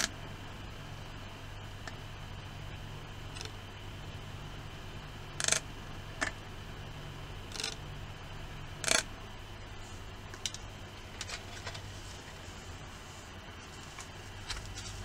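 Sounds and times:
faint low hum: 0.0s - 15.0s
plastic film scraping and clicking: 13.7s - 15.0s.

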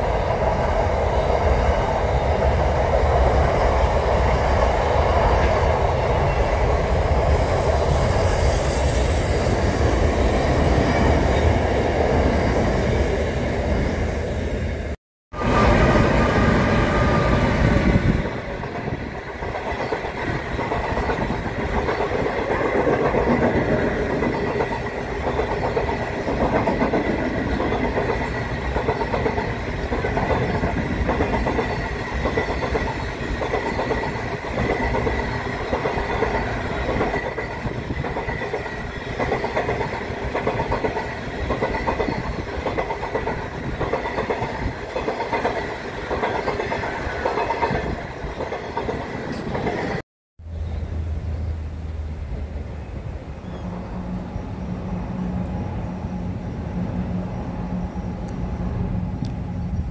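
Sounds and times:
train wheels clacking on rails: 15.5s - 50.0s.

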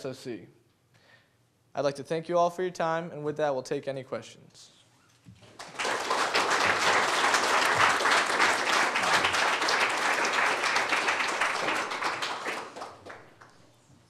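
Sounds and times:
audience applause: 5.5s - 13.5s.

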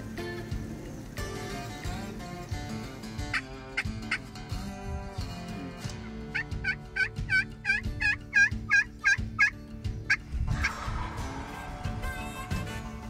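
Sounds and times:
wild turkey yelping: 3.2s - 4.3s, 6.3s - 11.2s.

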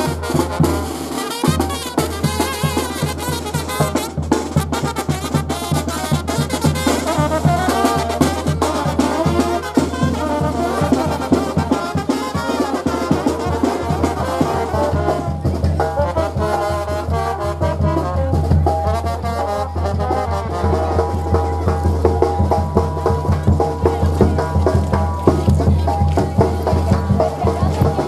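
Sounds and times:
trumpets and trombones melody: 0.0s - 21.7s
marching snare and bass drums: 0.0s - 28.0s.

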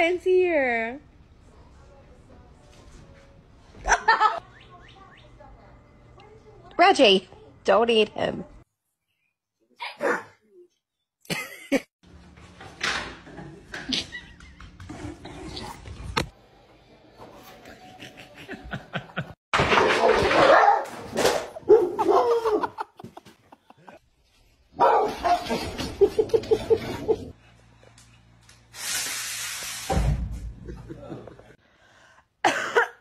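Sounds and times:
people laughing: 17.6s - 19.4s, 22.0s - 24.0s, 25.6s - 27.3s, 30.6s - 31.6s.

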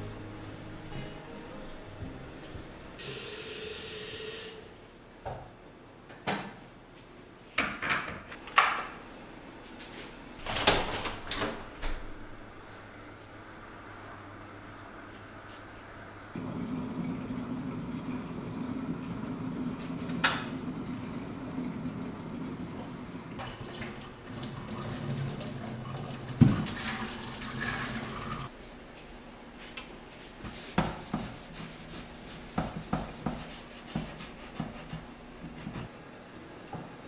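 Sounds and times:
tap water running into kettle: 22.8s - 28.5s
kettle knocking and rubbing: 32.2s - 35.9s.

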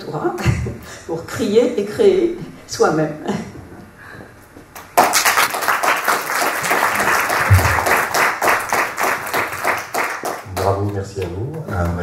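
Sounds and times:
audience applauding: 4.8s - 12.0s
low thump: 7.5s - 7.9s.

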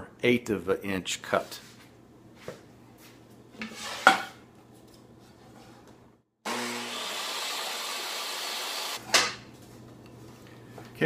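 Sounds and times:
table saw motor whirring: 6.5s - 9.0s.

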